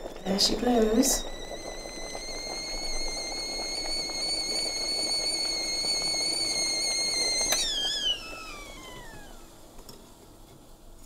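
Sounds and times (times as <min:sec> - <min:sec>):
kettle whistling: 0:00.0 - 0:10.4
kettle click: 0:06.6 - 0:08.0.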